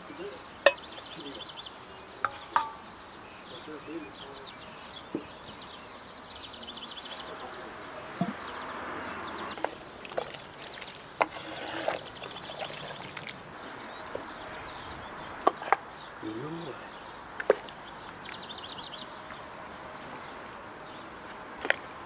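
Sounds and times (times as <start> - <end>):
small birds chirping: 0.0 - 22.0
steady background hiss: 0.0 - 22.0
ladle clinking on dishes: 0.6 - 0.8, 2.2 - 2.8.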